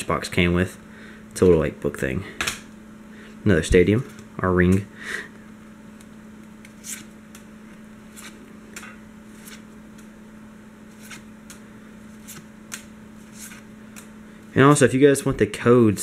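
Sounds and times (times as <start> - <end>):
faint steady hum: 0.0 - 16.0
cards sliding papery swish: 6.6 - 7.1, 8.1 - 8.4, 9.3 - 10.1, 10.9 - 14.1.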